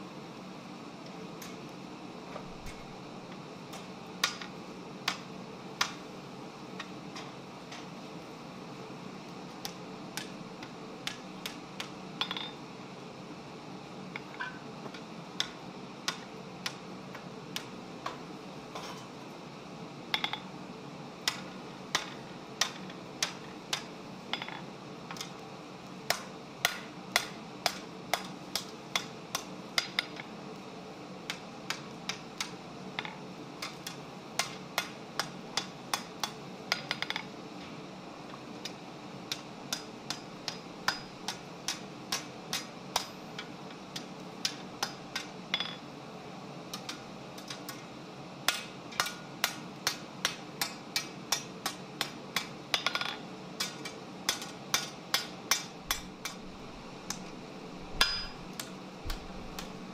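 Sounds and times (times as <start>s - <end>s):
hammer striking metal on anvil: 39.7s - 43.1s, 48.5s - 56.5s, 57.9s - 58.5s.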